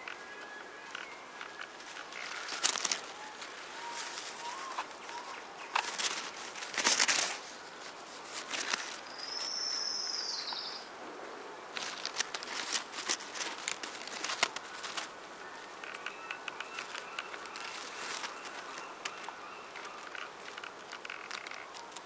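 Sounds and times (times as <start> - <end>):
faint high chirping: 0.0 - 6.6, 8.8 - 10.9
leaves rustling: 0.0 - 22.0.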